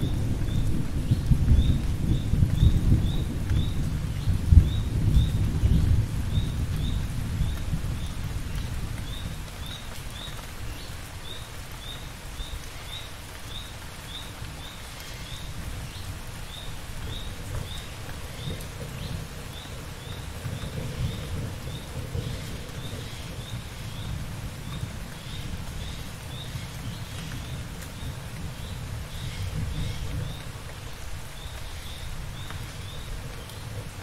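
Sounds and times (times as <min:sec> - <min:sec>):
thunder rumble: 0:00.0 - 0:09.5, 0:16.9 - 0:30.6
steady rain: 0:00.0 - 0:34.0.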